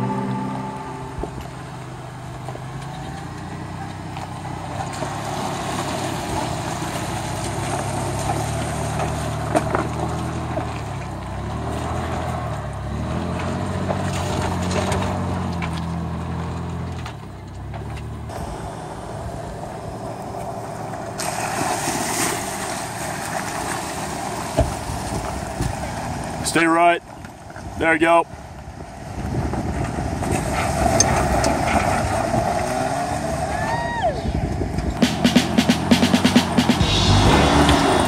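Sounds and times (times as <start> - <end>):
quieter vehicle engine: 0.0 - 14.4, 15.1 - 24.6, 35.0 - 38.0
pickup engine at low revs: 2.3 - 26.5.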